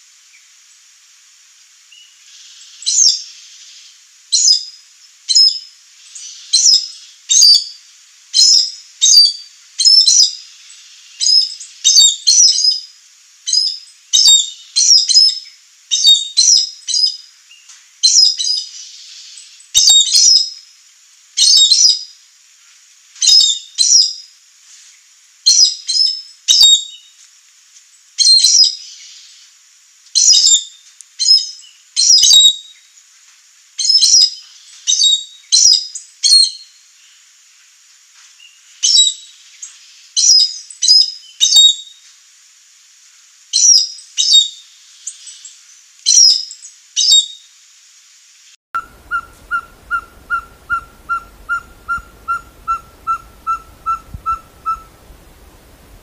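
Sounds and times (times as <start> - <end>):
bird calling sharp high notes: 48.8 - 55.0.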